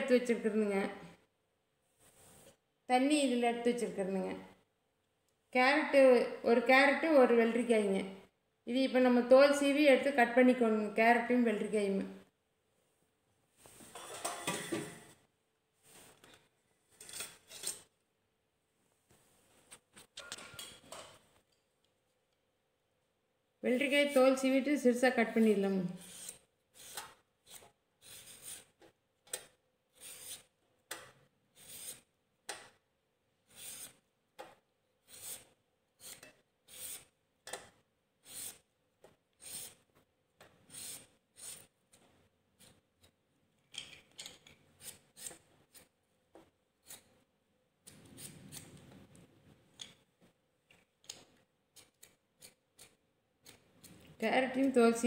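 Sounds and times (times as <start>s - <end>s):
vegetable peeler scraping: 26.0s - 28.8s, 29.9s - 30.6s, 31.6s - 32.1s, 33.5s - 34.0s, 35.0s - 37.1s, 38.2s - 38.7s, 39.4s - 39.8s, 40.7s - 41.7s, 44.8s - 45.9s, 46.8s - 47.1s, 47.9s - 48.8s.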